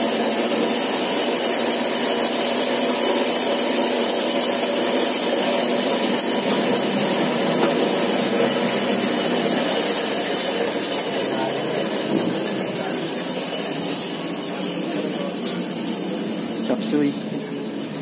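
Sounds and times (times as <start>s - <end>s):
power tool hissing: 4.9s - 17.5s.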